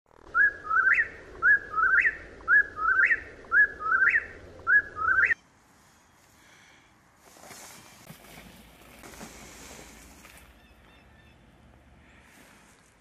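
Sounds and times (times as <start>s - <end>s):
bird calling three-note song: 0.3s - 5.4s, 10.6s - 11.6s.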